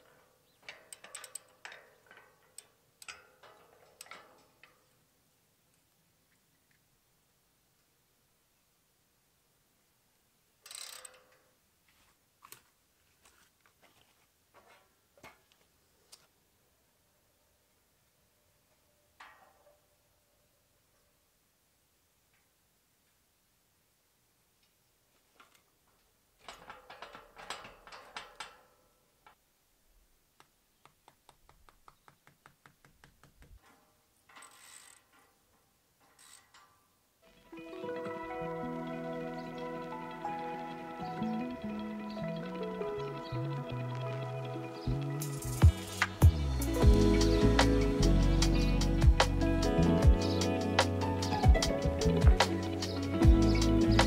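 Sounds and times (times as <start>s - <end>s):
ratchet clicking: 10.6s - 11.2s
faint taps and clicks: 30.4s - 33.7s.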